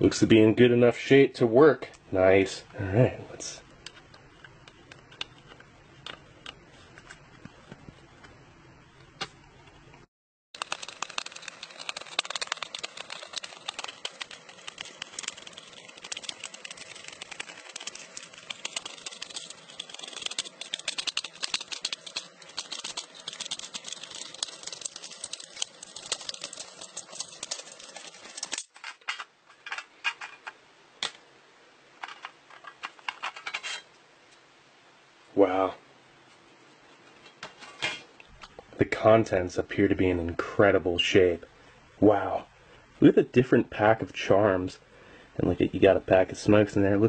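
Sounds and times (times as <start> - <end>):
can opener clicking around tin: 10.6 - 28.8
scattered clicks and taps: 10.6 - 28.9.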